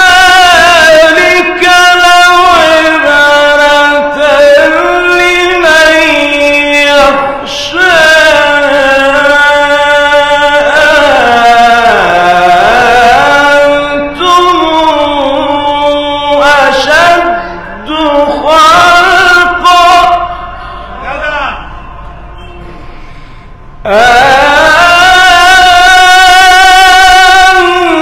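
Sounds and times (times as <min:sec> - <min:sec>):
man reciting melodically: 0:00.0 - 0:22.3, 0:23.7 - 0:28.0.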